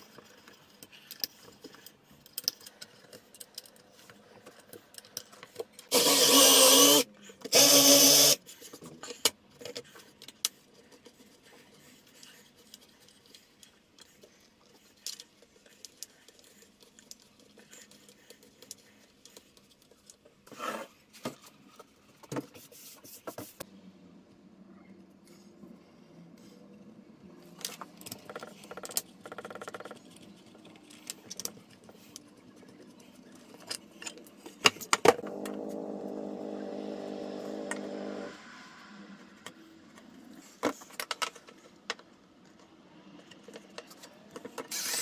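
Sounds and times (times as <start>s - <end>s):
cordless drill driving screws: 5.9s - 8.4s, 44.7s - 45.0s.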